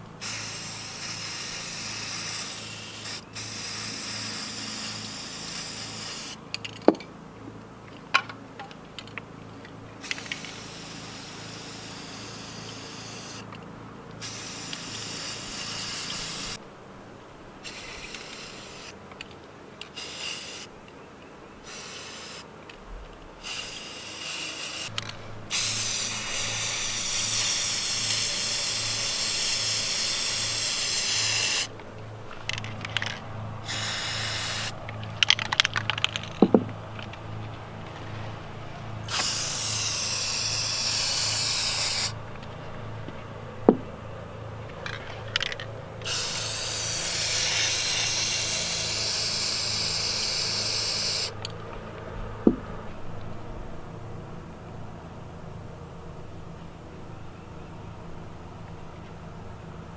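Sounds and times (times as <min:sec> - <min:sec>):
spray paint cans hissing: 0:00.2 - 0:06.8, 0:10.0 - 0:13.6, 0:14.2 - 0:16.6, 0:17.6 - 0:19.0, 0:19.8 - 0:20.7, 0:21.6 - 0:22.5, 0:23.4 - 0:37.2, 0:39.0 - 0:42.6, 0:44.8 - 0:51.5.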